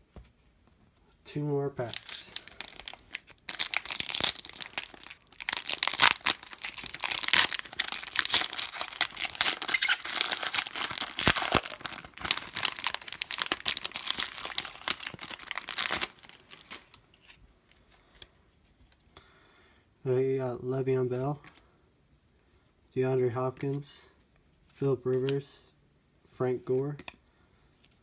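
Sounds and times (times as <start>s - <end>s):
plastic foil wrapper crinkling: 1.8s - 17.0s.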